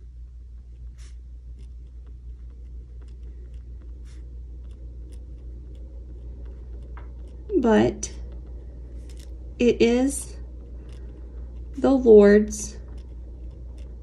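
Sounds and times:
steady low hum: 0.0s - 14.0s
pen scratching on paper: 0.8s - 8.2s, 10.6s - 11.8s, 12.8s - 14.0s.

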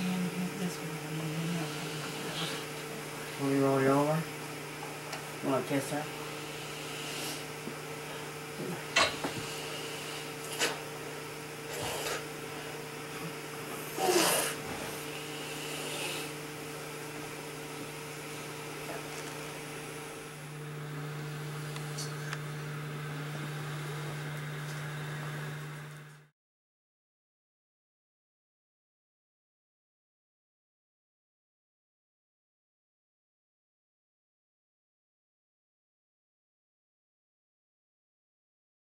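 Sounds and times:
ventilator blowing air hum: 0.0s - 26.3s.

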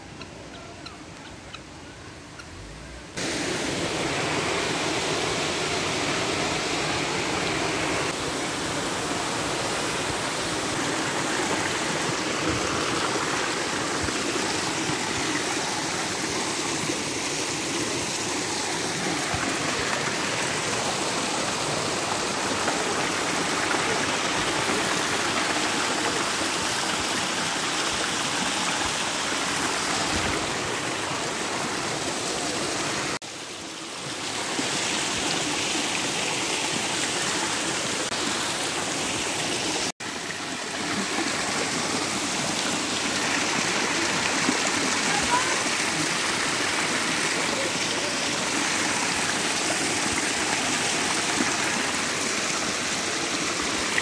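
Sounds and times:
waterfall splashing over rocks: 3.1s - 54.0s.

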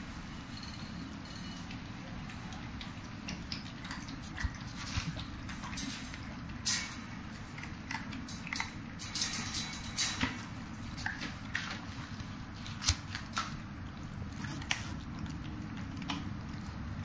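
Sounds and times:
puppy claws clicking on plastic grid: 2.8s - 11.9s.

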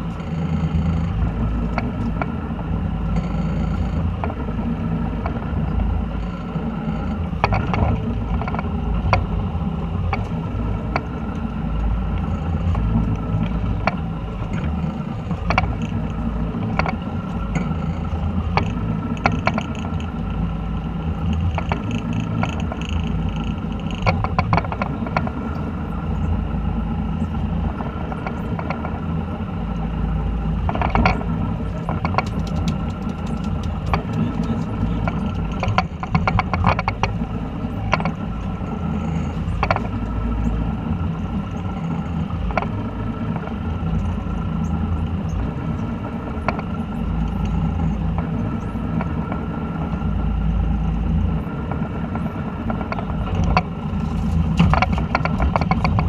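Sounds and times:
boat engine droning: 0.0s - 56.0s
sharp clicks and knocks: 0.1s - 2.4s, 6.2s - 9.4s, 10.1s - 20.3s, 21.2s - 25.6s, 27.7s - 29.0s, 30.6s - 38.2s, 39.1s - 40.2s, 41.6s - 44.2s, 46.4s - 50.0s, 51.7s - 56.0s.

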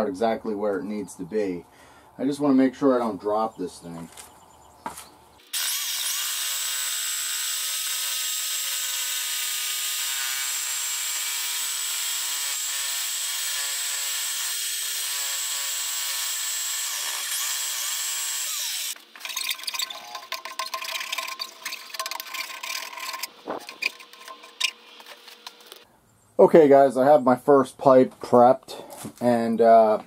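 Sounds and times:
reciprocating saw cutting pipe: 5.5s - 25.8s.

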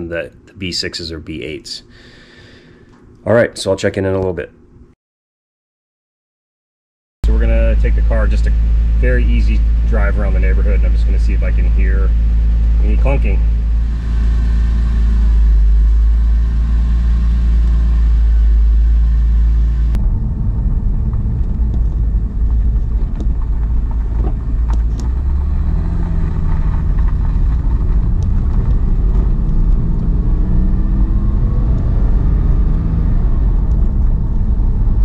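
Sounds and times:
car engine at low revs: 7.2s - 35.0s
road and tyre rumble: 7.2s - 35.0s
faint clicks from road: 21.1s - 30.2s, 33.6s - 34.4s.

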